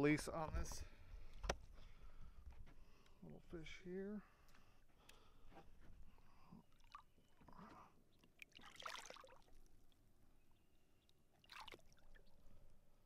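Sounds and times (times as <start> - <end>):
water sloshing and splashing: 5.7 - 12.7
fish splashing in water: 8.3 - 9.7, 11.3 - 12.3.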